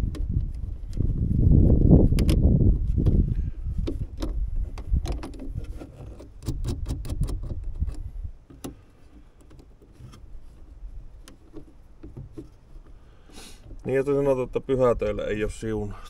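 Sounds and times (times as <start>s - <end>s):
small metallic clicks: 3.8s - 13.0s.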